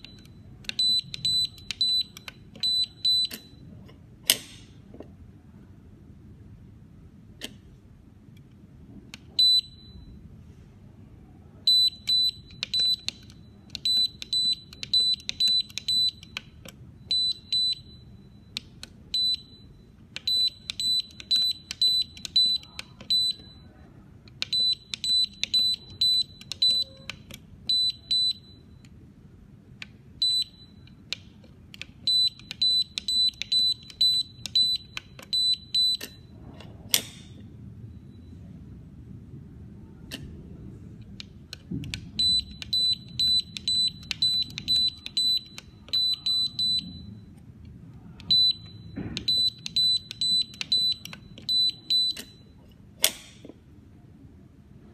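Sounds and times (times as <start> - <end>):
keypad beeps: 0.0 - 3.7, 9.2 - 10.2, 11.7 - 23.8, 24.4 - 29.0, 30.2 - 31.2, 31.8 - 36.3, 41.9 - 47.4, 48.2 - 52.7.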